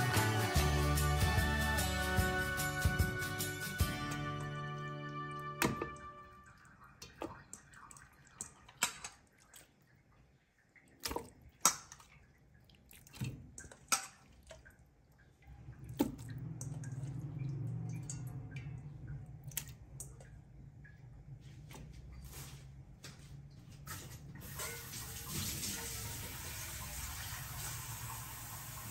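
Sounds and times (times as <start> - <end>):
wet meat slapping into a pot: 7.0 - 9.6, 11.0 - 12.2, 12.9 - 14.6, 15.8 - 18.6.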